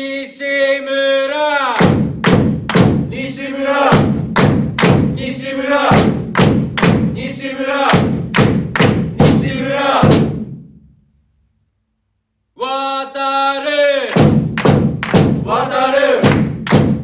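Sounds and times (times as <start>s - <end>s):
drum beats: 1.8s - 10.9s, 14.1s - 17.0s
football supporters chanting: 2.9s - 10.4s, 15.0s - 16.8s.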